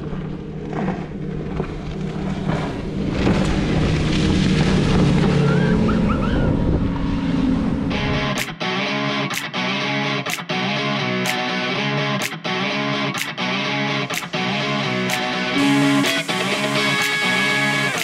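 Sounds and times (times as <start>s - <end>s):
motorboat engines running: 0.0s - 8.1s, 14.2s - 18.0s
wind buffeting microphone: 0.0s - 8.4s
rushing water: 2.4s - 6.0s, 14.1s - 18.0s.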